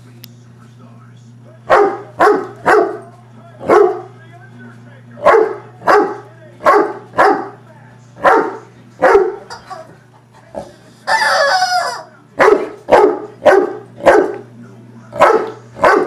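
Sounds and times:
dog barking: 0:01.7 - 0:04.1, 0:05.2 - 0:07.6, 0:08.2 - 0:09.5, 0:11.1 - 0:14.4, 0:15.2 - 0:16.0
rubber chicken toy squawk: 0:11.1 - 0:12.1.

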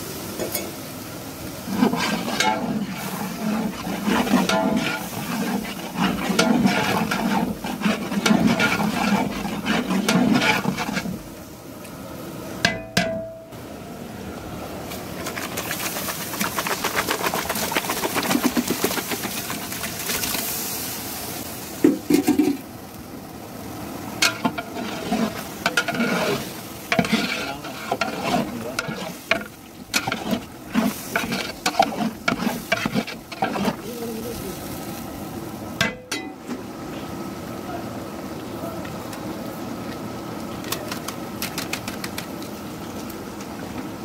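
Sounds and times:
food sizzling in a metal pot: 0:00.0 - 0:11.6, 0:14.9 - 0:36.6
metal ladle scraping a pot: 0:01.7 - 0:11.2, 0:24.2 - 0:33.8.

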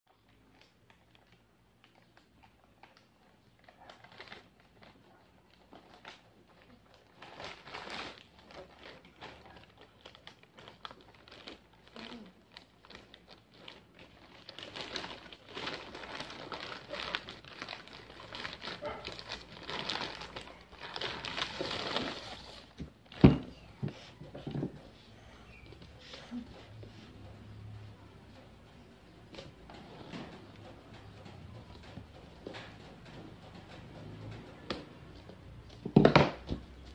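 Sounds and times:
plastic bag crinkling: 0:00.1 - 0:23.3.

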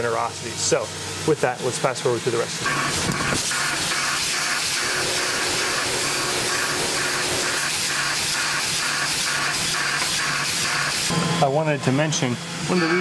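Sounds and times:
coolant spray hiss: 0:00.0 - 0:11.1
milling cutter cutting metal: 0:02.6 - 0:11.2.

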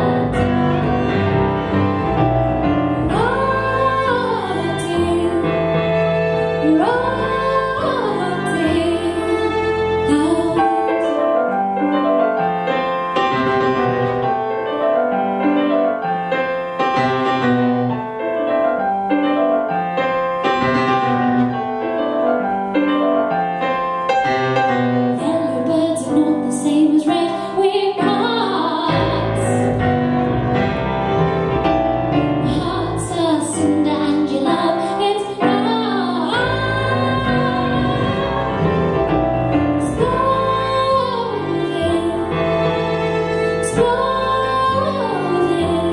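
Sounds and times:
woman singing: 0:00.0 - 0:00.8, 0:03.0 - 0:05.8, 0:06.6 - 0:11.5, 0:25.1 - 0:29.7, 0:32.4 - 0:38.8, 0:39.8 - 0:42.6, 0:43.6 - 0:45.9
double bass notes: 0:00.0 - 0:10.9, 0:28.9 - 0:34.7, 0:35.6 - 0:45.9
fiddle: 0:00.0 - 0:11.7, 0:27.4 - 0:45.9
keyboard: 0:00.0 - 0:45.9.

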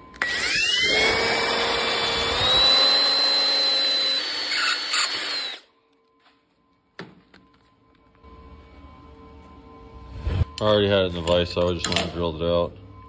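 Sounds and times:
power drill whining: 0:00.1 - 0:05.7.

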